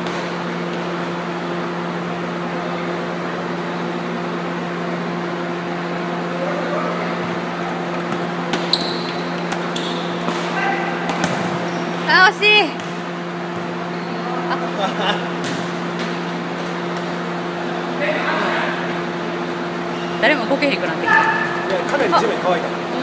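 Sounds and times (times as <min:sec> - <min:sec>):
indoor hall hum: 0:00.0 - 0:23.0
shoe squeaks: 0:08.2 - 0:10.9, 0:11.5 - 0:12.1, 0:19.9 - 0:20.4.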